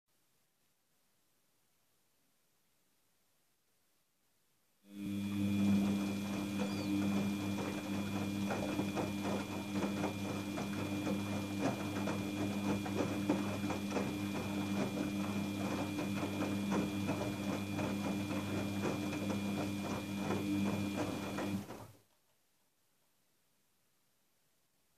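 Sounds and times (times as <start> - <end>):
washing machine motor humming: 4.9 - 22.0
water and laundry splashing: 5.1 - 22.0.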